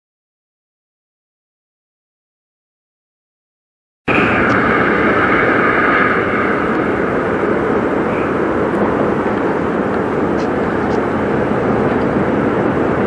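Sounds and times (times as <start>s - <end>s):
distant jet engines: 4.1s - 13.0s.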